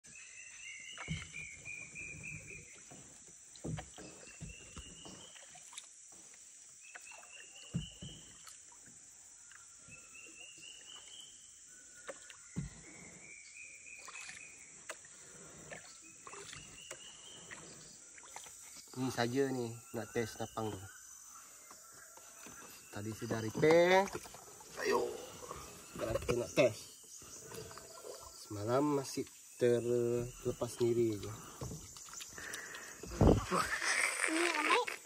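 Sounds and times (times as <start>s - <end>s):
water splashing: 0.8s - 13.1s, 13.8s - 19.4s
paddle knocking against hull: 1.0s - 5.5s, 7.6s - 8.6s, 12.1s - 12.9s
high insect buzz: 24.4s - 35.0s.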